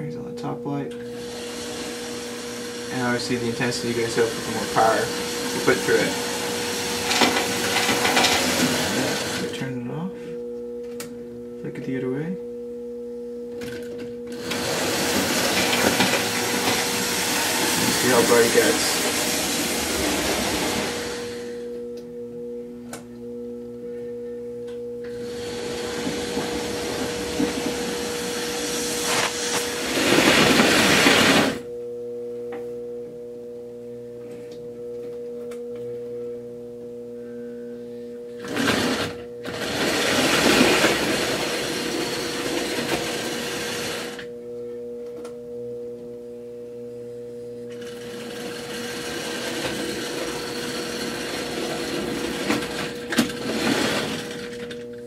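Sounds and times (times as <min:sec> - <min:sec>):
model train electric hum: 0:01.0 - 0:09.5, 0:14.3 - 0:21.7, 0:25.0 - 0:31.6, 0:38.4 - 0:44.3, 0:47.7 - 0:54.9
rushing wheel and motor noise: 0:14.4 - 0:21.5, 0:25.2 - 0:31.6.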